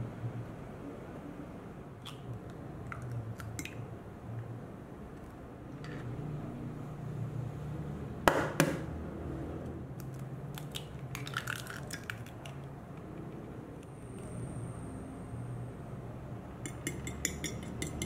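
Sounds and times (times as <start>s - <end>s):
eggshell tapping on hard edge: 16.6s - 18.0s.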